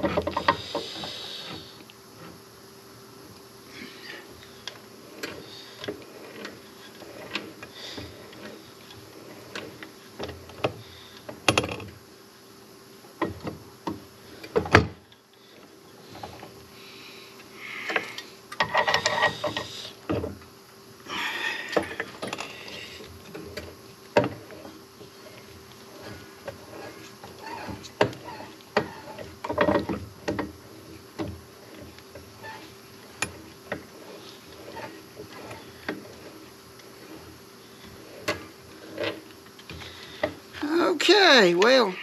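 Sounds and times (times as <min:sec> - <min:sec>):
faint steady hum: 0:00.0 - 0:42.0.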